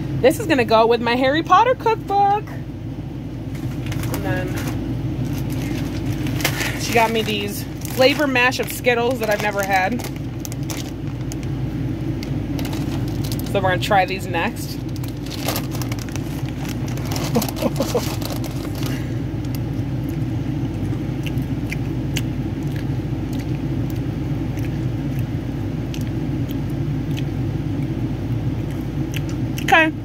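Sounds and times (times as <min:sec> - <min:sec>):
steady low rumble: 0:00.0 - 0:30.0
plastic bag crinkling: 0:03.4 - 0:11.6, 0:12.5 - 0:19.1.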